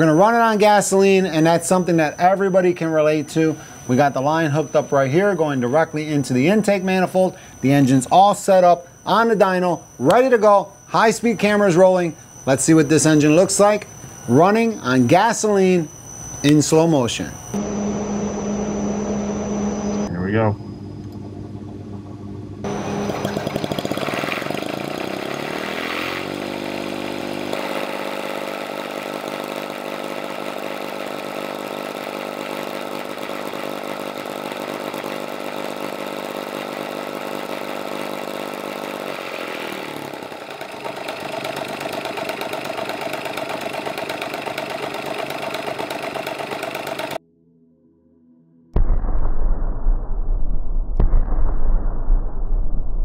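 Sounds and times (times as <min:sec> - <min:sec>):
rotary engine running: 0:17.4 - 0:47.2.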